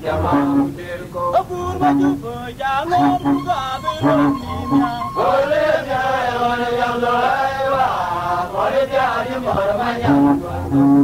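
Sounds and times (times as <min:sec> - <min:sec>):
person singing a chant-like song: 0:02.9 - 0:11.0.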